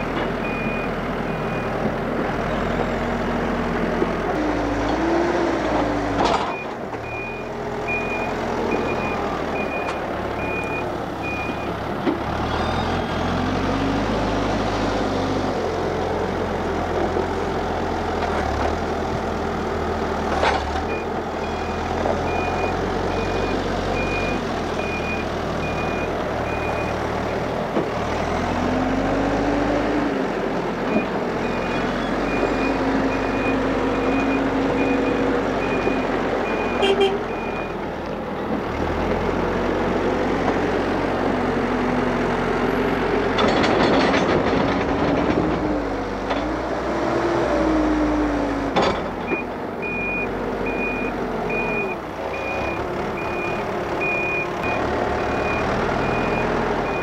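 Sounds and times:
backhoe diesel engine running: 0.0 - 57.0
reversing alarm beeping: 6.5 - 11.7, 20.9 - 26.9, 31.4 - 37.8, 49.3 - 57.0.

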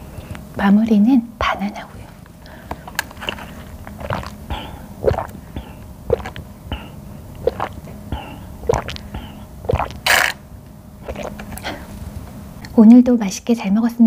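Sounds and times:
swallowing: 1.9 - 10.3, 11.0 - 11.9
sucking through a straw: 3.2 - 10.3, 11.0 - 11.6.

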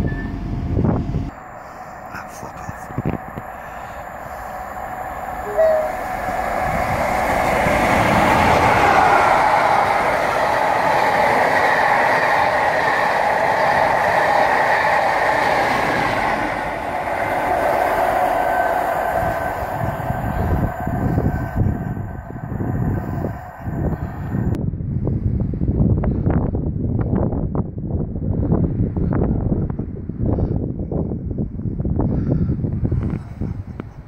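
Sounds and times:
train wheels on rails: 0.0 - 24.6.

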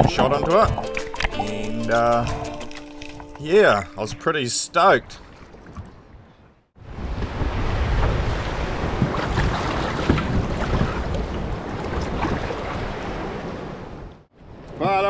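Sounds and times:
waves washing and splashing: 4.8 - 14.8
wind buffeting microphone: 5.7 - 14.8.

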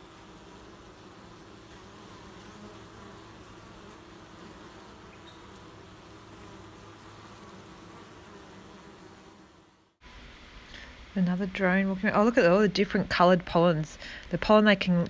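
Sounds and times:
bees buzzing: 0.0 - 10.0.

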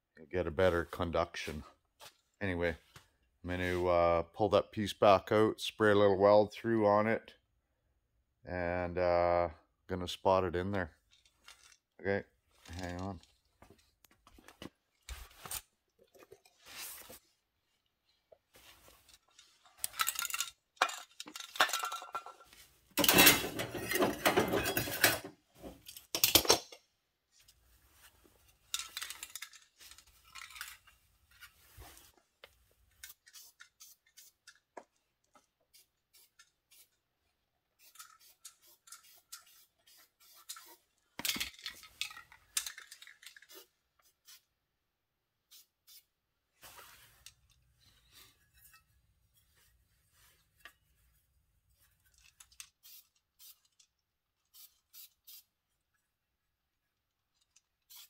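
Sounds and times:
aerosol can spraying: 35.7 - 36.9, 37.8 - 40.7, 52.8 - 53.7, 54.5 - 55.5.

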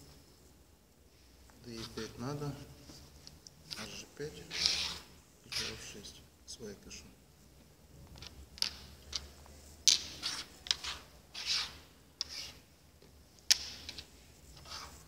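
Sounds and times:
game pieces clicking on wooden board: 8.2 - 11.0.

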